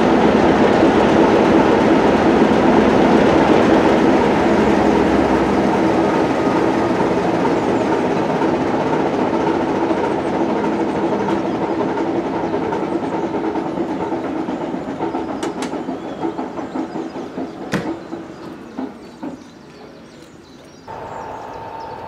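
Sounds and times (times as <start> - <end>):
diesel locomotive engine running: 0.0 - 22.0
loud knock: 17.7 - 18.0.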